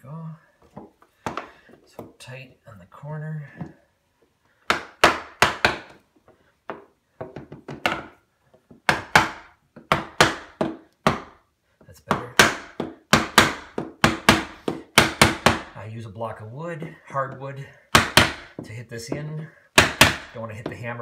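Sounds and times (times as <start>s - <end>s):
hammer striking wooden block: 4.7s - 6.0s, 6.7s - 11.4s, 12.1s - 15.8s, 17.9s - 19.2s, 19.8s - 20.9s.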